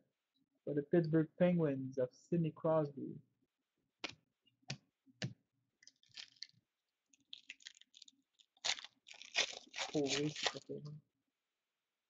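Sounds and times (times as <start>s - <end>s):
foil wrapper crinkling: 5.8s - 6.6s, 7.2s - 10.7s.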